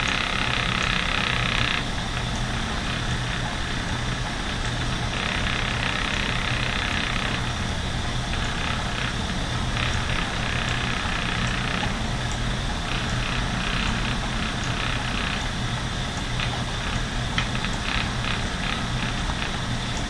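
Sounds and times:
spinning wheel whirring: 0:00.0 - 0:20.0.

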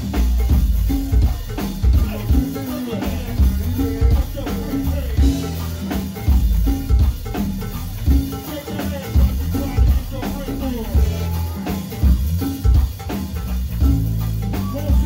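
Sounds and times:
drum kit and congas: 0:00.0 - 0:15.0
heavy bass drum beat: 0:00.0 - 0:15.0.

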